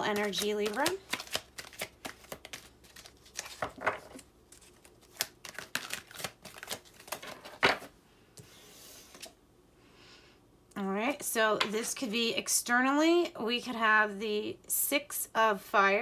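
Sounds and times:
cards being shuffled: 0:00.0 - 0:07.9.

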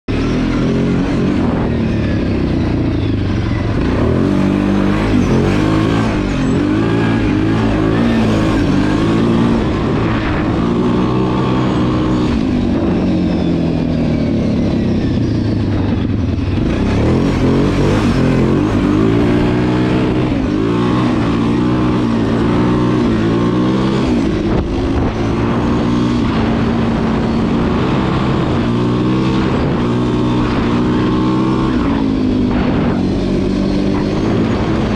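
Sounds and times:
atv engine revving: 0:00.1 - 0:34.9.

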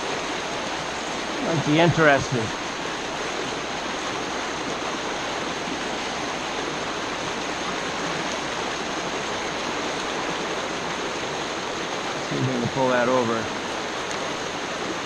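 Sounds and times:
river water rushing over rocks: 0:00.0 - 0:15.0.

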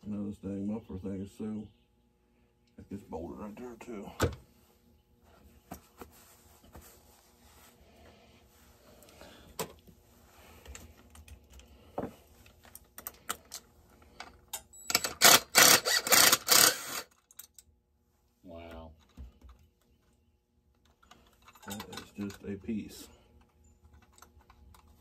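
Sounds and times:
metal and plastic parts clicking: 0:12.6 - 0:17.7.

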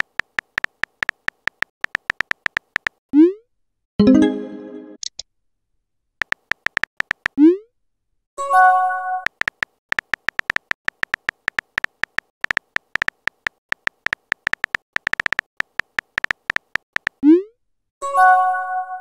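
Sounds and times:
keyboard tap ticks: 0:00.0 - 0:03.0, 0:06.2 - 0:07.4, 0:09.3 - 0:17.2.

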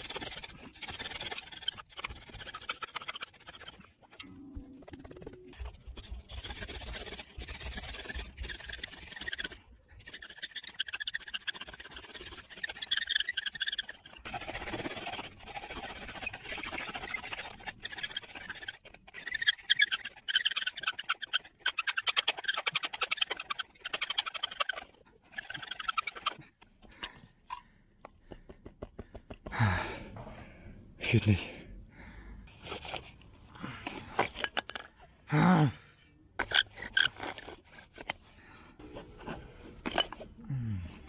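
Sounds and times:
bow drill spindle grinding: 0:05.9 - 0:26.4, 0:36.4 - 0:38.3.

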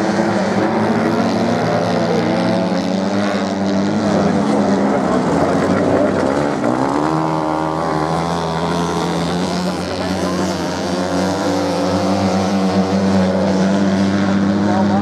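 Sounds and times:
motorcycle accelerating: 0:00.0 - 0:15.0
motorcycle engines revving: 0:00.0 - 0:15.0.

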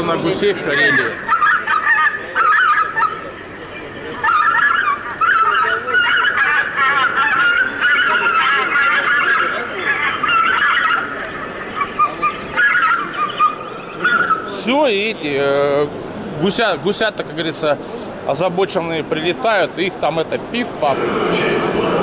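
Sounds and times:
geese honking: 0:00.0 - 0:14.8.

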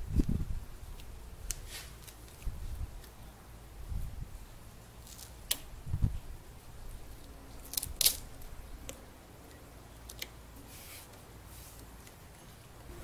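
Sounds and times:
duct tape ripping: 0:01.0 - 0:03.2, 0:05.0 - 0:05.7, 0:07.1 - 0:08.5.

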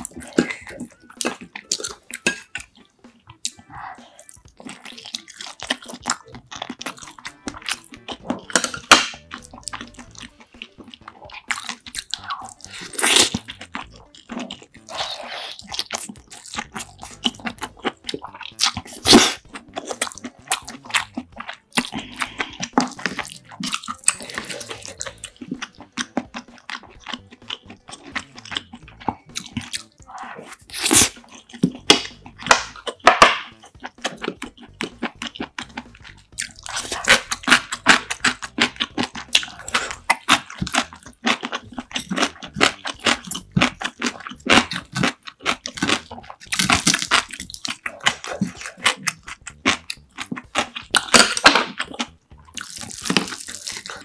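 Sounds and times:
wet chewing and mouth sounds: 0:00.0 - 0:54.0
chopsticks and spoon clinking dishes: 0:00.4 - 0:02.9.

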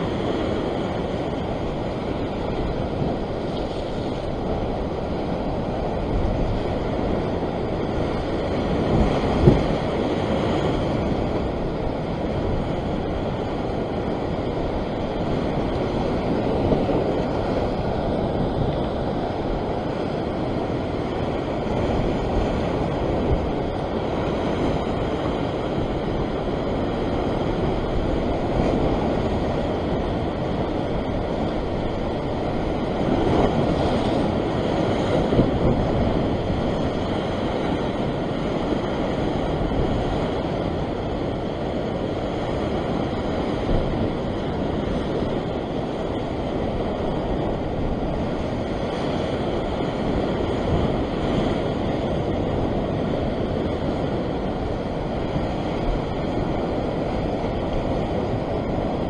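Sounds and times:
sea surf breaking over rocks: 0:00.0 - 0:59.0.

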